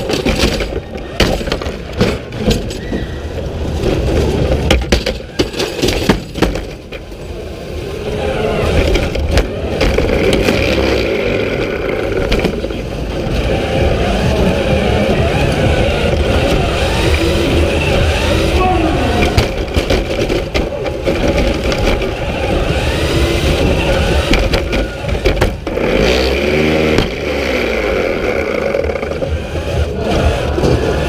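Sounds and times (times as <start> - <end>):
robot clattering knocks and rattles: 0.0 - 2.8, 3.8 - 7.2, 8.7 - 13.4, 19.2 - 26.0
drive motors whining: 0.0 - 31.0.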